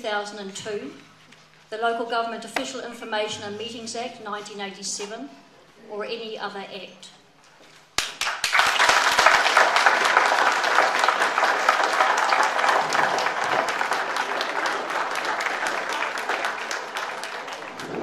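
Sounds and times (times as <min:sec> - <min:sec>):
audience applauding: 0:08.0 - 0:18.0.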